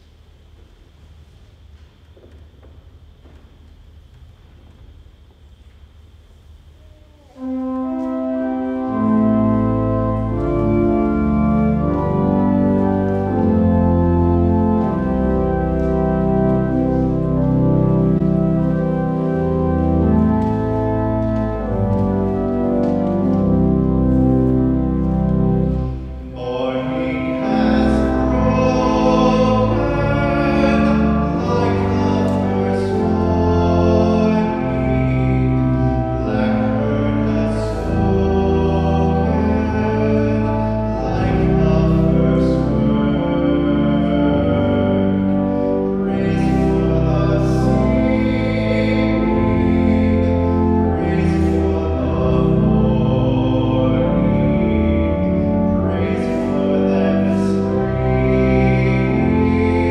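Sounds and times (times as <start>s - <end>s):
church organ chords: 7.3s - 59.9s
person singing: 26.2s - 59.9s.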